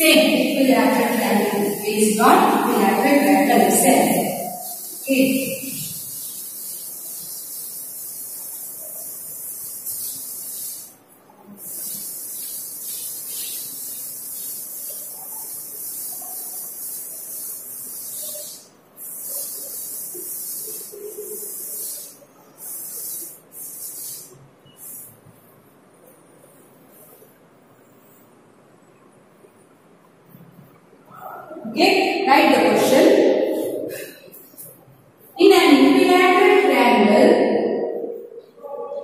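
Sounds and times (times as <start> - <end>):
duster wiping chalk off blackboard: 0.1 - 10.9, 11.6 - 25.1.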